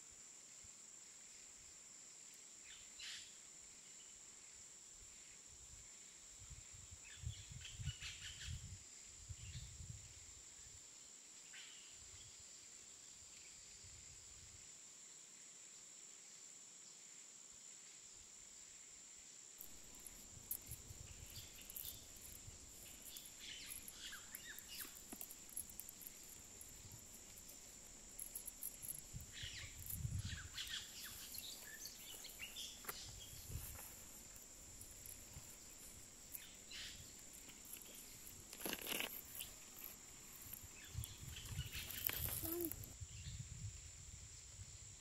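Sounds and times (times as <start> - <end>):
high-pitched insect drone: 19.6 - 43.4
crackles of skins being peeled: 30.6 - 42.9.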